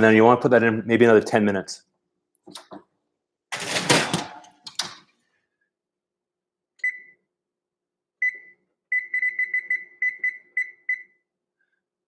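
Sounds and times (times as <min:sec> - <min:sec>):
oven keypad beeping: 0:06.8 - 0:07.2, 0:08.2 - 0:11.2.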